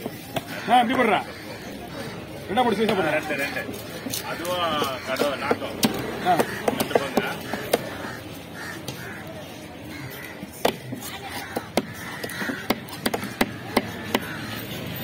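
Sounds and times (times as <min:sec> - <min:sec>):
cleaver chopping on wooden block: 0:05.1 - 0:07.9, 0:11.5 - 0:14.4.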